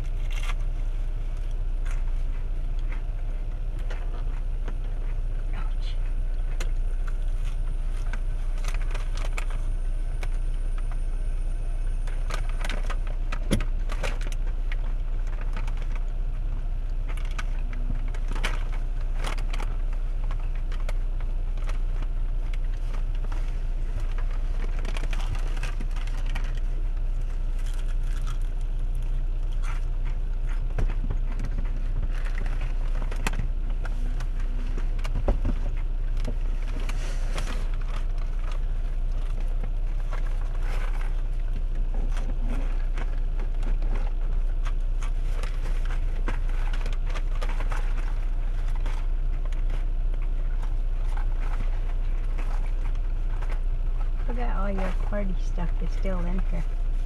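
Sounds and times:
car cabin low rumble: 0:00.0 - 0:57.0
food packaging crinkling: 0:27.2 - 0:30.5.

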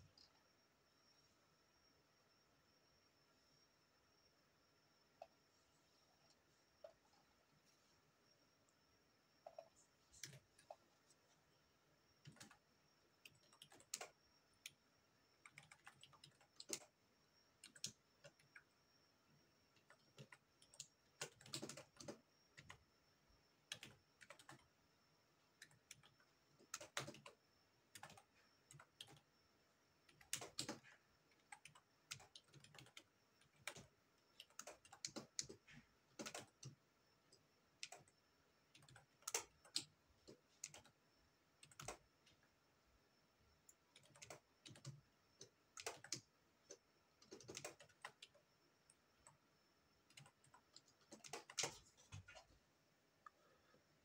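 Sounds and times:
keyboard typing: 0:09.4 - 0:11.3, 0:12.1 - 0:23.0, 0:23.6 - 0:24.8, 0:25.4 - 0:29.4, 0:30.0 - 0:42.5, 0:43.6 - 0:52.5.

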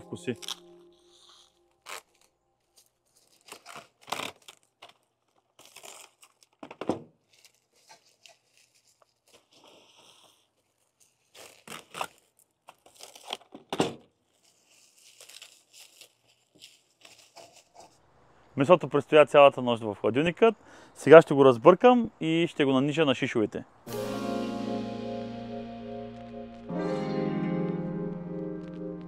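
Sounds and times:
plastic cling wrap crinkling: 0:00.1 - 0:18.0
cling wrap ripping: 0:00.3 - 0:18.0.

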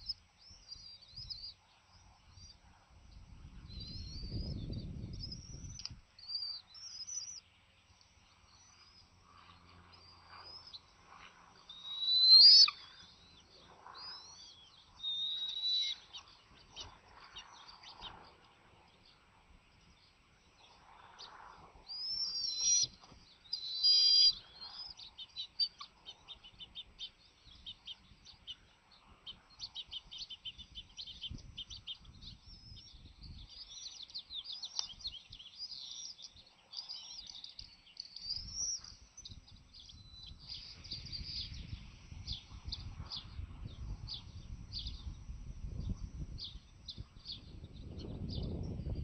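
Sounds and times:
eagle chirping and twittering: 0:00.0 - 0:07.5, 0:08.4 - 0:19.2, 0:20.6 - 0:49.0
eagle high whistles: 0:11.7 - 0:12.8, 0:14.0 - 0:16.1, 0:23.6 - 0:24.4.

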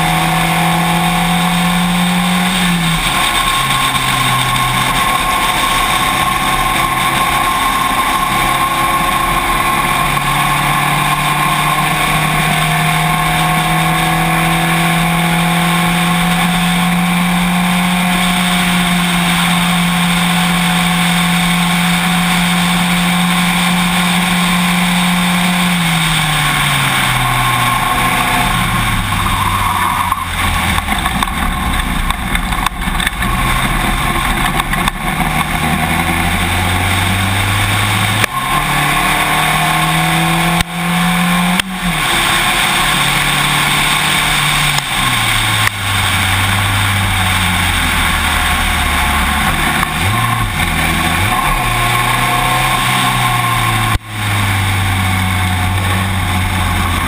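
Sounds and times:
race car engine: 0:00.0 - 0:57.0
rain tapping on camera: 0:30.0 - 0:57.0.

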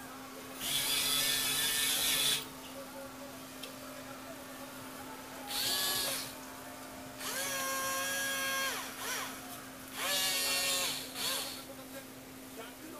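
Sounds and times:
small geared motors whining: 0:00.6 - 0:02.4, 0:05.5 - 0:06.3, 0:07.2 - 0:09.4, 0:10.0 - 0:11.6.

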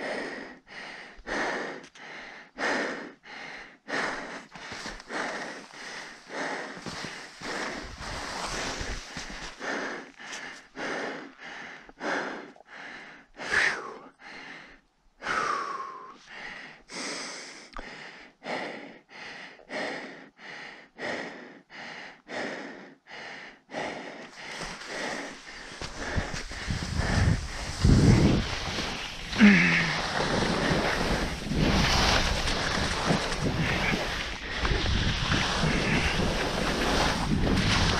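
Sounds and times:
person breathing hard: 0:00.0 - 0:37.9
voiced sighs: 0:09.6 - 0:32.2.

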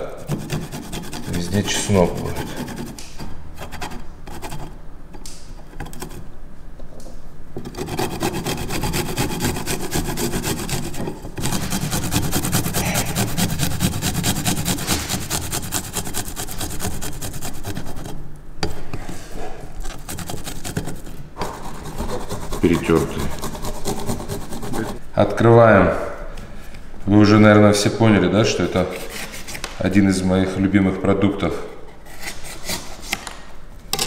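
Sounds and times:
garlic grated on metal grater: 0:07.7 - 0:18.1.

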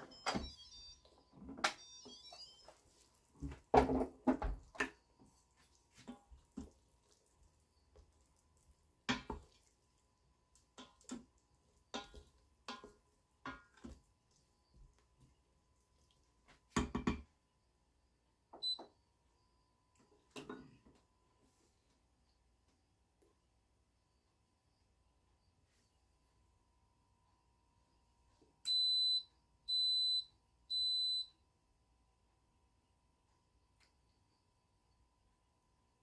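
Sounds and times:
wooden spoon knocking pot: 0:11.9 - 0:14.0.

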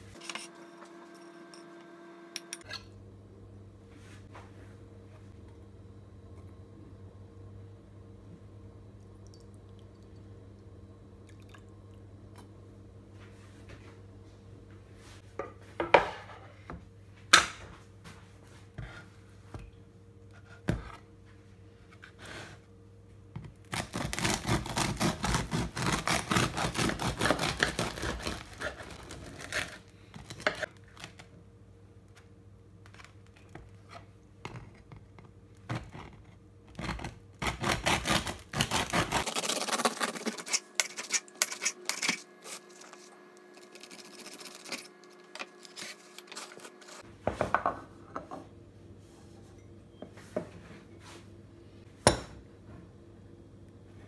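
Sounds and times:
bread knife sawing through loaf: 0:23.7 - 0:29.8, 0:36.9 - 0:45.0.

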